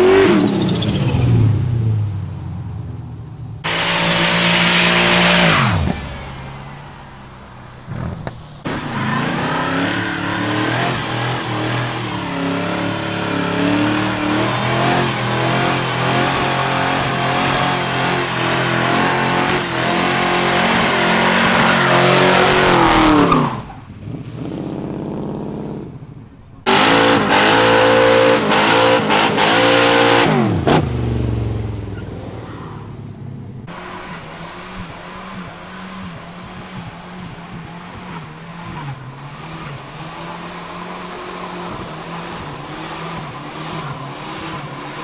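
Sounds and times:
car engines revving high: 0.0s - 45.0s
tyres squealing on asphalt: 3.7s - 24.0s, 33.7s - 45.0s.

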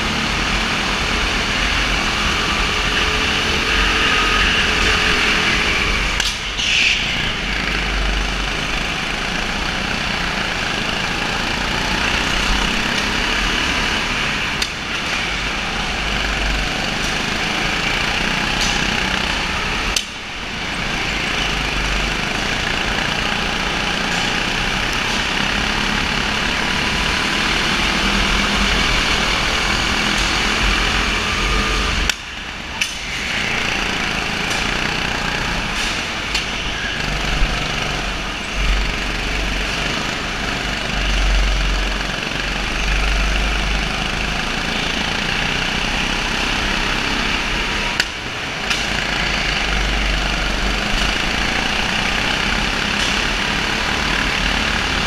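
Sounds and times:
go-kart engines running: 0.0s - 55.0s.

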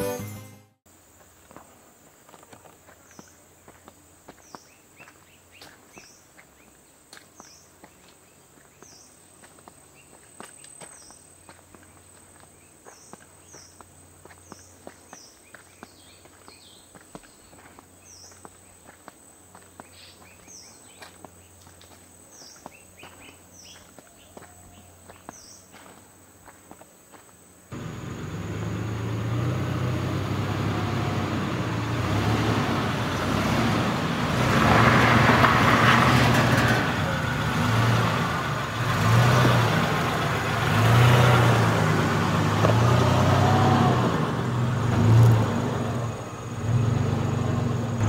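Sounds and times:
footsteps crunching on dry leaves: 1.2s - 27.3s.

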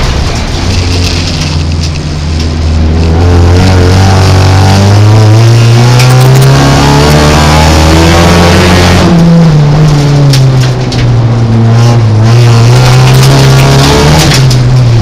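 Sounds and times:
gravel hitting car: 0.0s - 3.8s, 9.7s - 15.0s
car engine at high revs: 0.0s - 15.0s.

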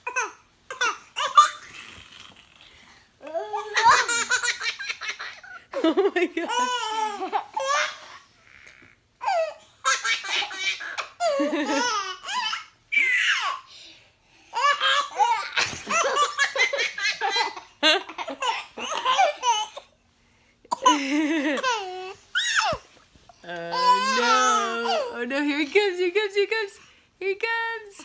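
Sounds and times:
baby and toddler laughing: 0.0s - 1.9s, 3.3s - 8.2s, 9.2s - 13.7s, 14.5s - 19.9s, 20.8s - 23.0s.

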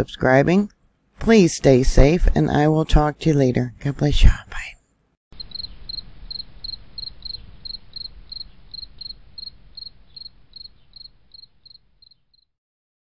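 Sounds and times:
faint low hiss: 4.4s - 12.0s
cricket chirping: 5.4s - 12.5s.

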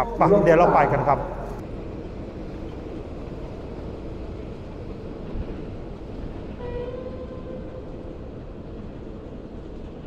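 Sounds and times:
steady tone: 0.0s - 1.6s
passenger train rumbling past: 0.0s - 10.0s.

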